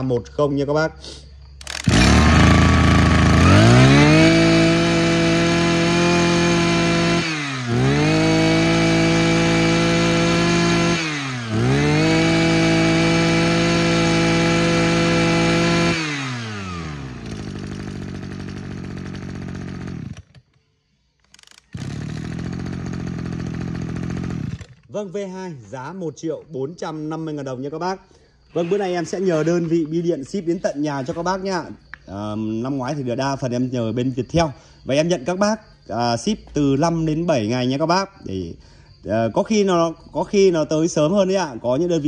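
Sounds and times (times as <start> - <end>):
brush cutter engine revving and idling: 1.6 - 20.5, 21.3 - 24.9.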